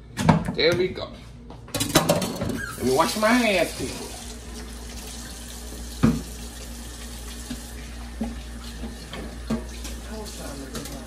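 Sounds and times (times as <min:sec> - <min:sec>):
tap running: 0:04.5 - 0:11.0.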